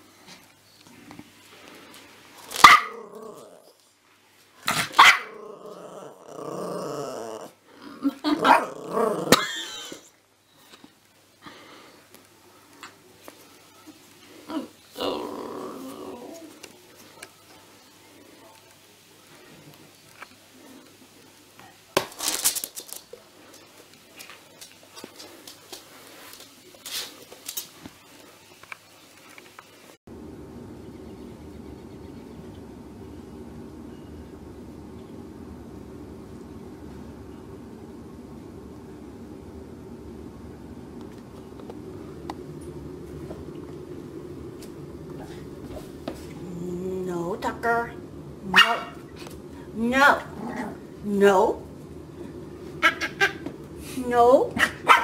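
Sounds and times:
puppy barking: 2.6 - 3.1, 4.8 - 5.4, 48.5 - 49.0, 54.6 - 55.0
puppy growling: 2.6 - 3.8, 4.8 - 10.0, 14.4 - 16.7, 50.1 - 51.0
puppy paws clicking on wooden floor: 22.2 - 29.7.

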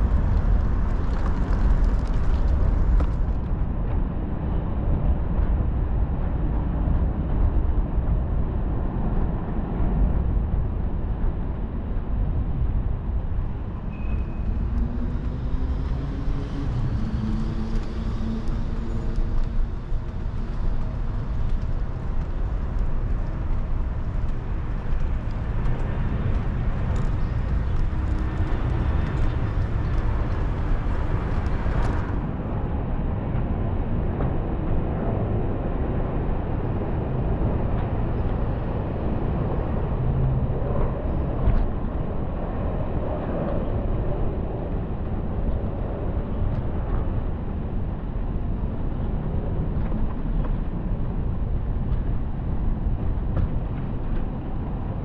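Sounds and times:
wheels rolling over pavement: 0.0 - 3.6, 14.4 - 32.6
wind on microphone: 0.0 - 55.0.

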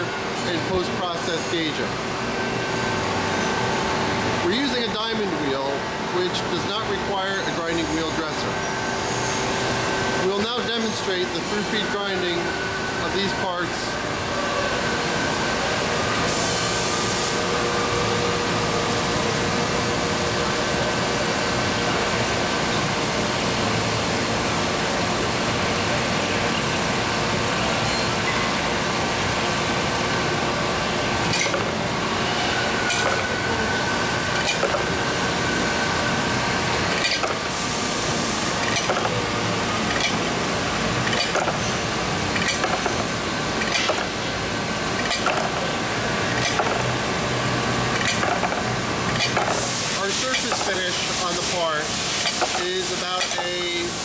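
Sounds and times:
grinder grinding hiss: 31.2 - 54.0
sharp clicks of parts: 39.9 - 40.2, 42.4 - 43.0, 43.6 - 44.1, 45.0 - 45.6, 48.0 - 49.6.

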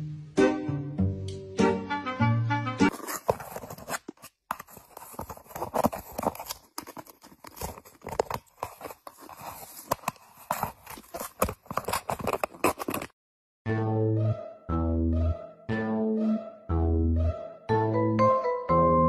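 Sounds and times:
cat clawing and tearing paper: 2.9 - 13.1.

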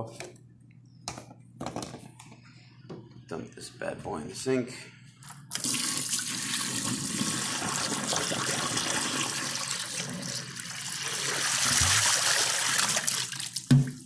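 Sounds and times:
liquid pouring into sink: 5.5 - 14.0
liquid splashing on drain: 11.0 - 14.0.

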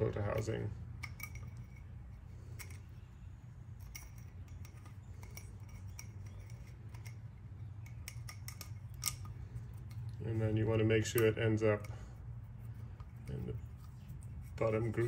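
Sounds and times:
o-ring clicking on metal housing: 0.0 - 12.0
steady low hum: 0.0 - 15.0.

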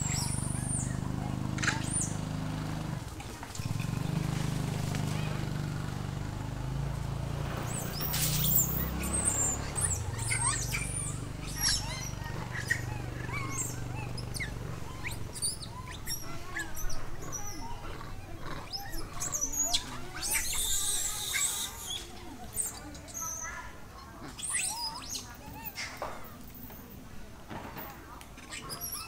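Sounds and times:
high chirping animal calls: 0.0 - 2.2, 7.7 - 23.6.

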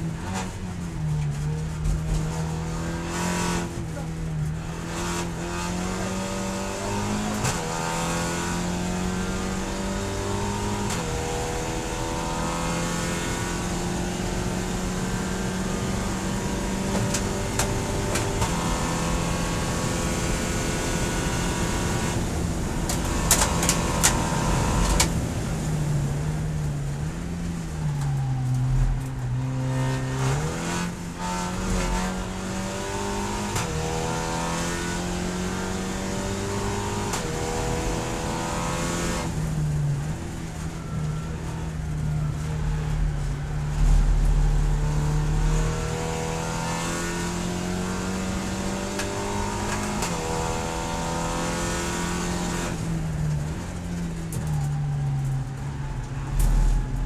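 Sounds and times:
race car engine shifting gears: 0.2 - 25.6, 43.8 - 55.1.

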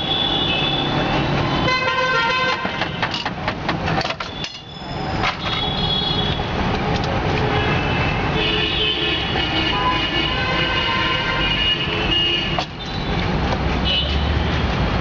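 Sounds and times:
vehicle horns tooting: 0.0 - 3.2, 4.3 - 6.5, 7.5 - 13.2
street traffic: 0.0 - 15.0.

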